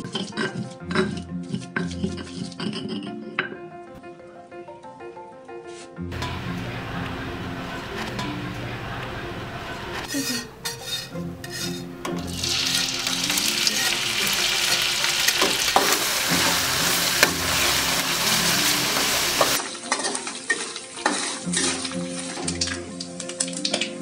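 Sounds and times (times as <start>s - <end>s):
metal spatula scraping wok: 0.0s - 3.1s, 6.1s - 22.1s
fish sizzling in hot oil: 10.7s - 24.0s.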